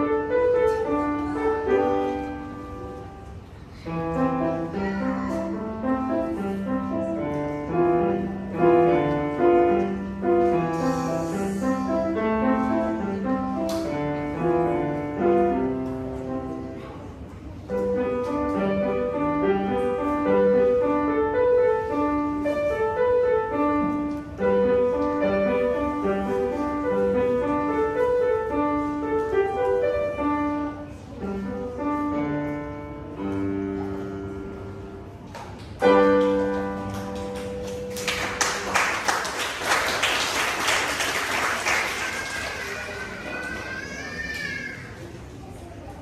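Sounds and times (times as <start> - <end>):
grand piano playing: 0.0 - 41.1
audience applause: 36.8 - 43.8.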